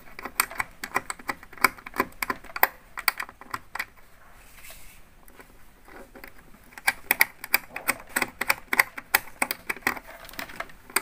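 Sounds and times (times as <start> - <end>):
plastic terminal clicks and taps: 0.0 - 3.9, 6.2 - 11.0.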